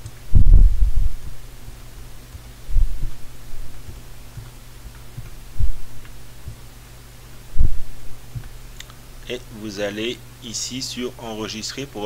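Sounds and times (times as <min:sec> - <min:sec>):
low electrical hum: 0:00.0 - 0:12.0
keyboard keystroke thumps: 0:02.3 - 0:06.6.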